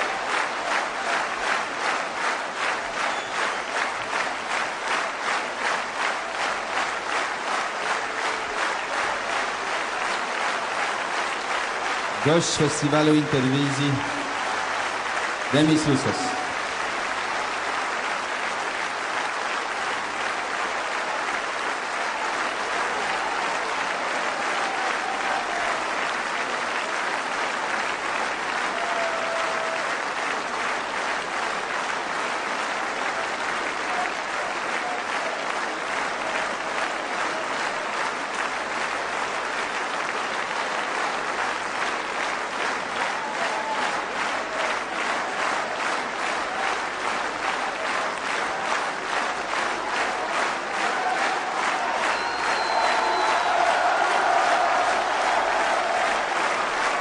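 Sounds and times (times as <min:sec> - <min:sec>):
audience applauding: 0:00.0 - 0:57.0
short calls from crowd: 0:47.5 - 0:57.0.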